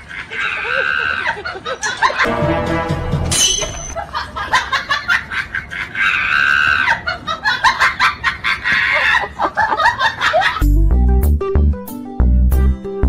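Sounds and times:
people laughing and snickering: 0:00.0 - 0:02.4, 0:04.0 - 0:10.7
shrill scream-like voice: 0:06.0 - 0:07.0.

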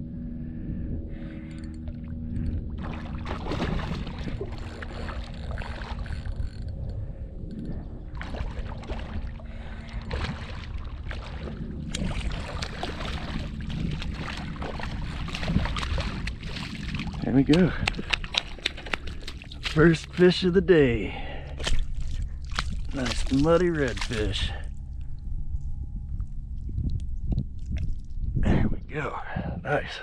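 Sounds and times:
fish splashing in water: 0:02.8 - 0:06.4, 0:08.2 - 0:17.2, 0:17.8 - 0:20.2.

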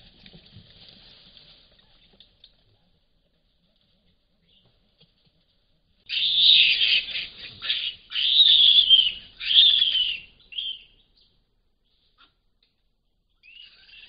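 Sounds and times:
baboon screaming: 0:06.1 - 0:10.8.

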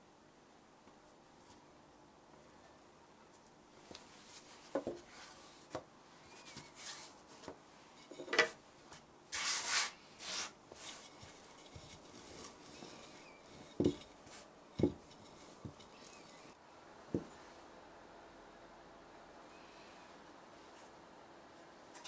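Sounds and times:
rolling pin swishing over pastry: 0:04.1 - 0:07.5, 0:09.3 - 0:16.6
kitchen tools tapping on mat: 0:14.8 - 0:15.9.

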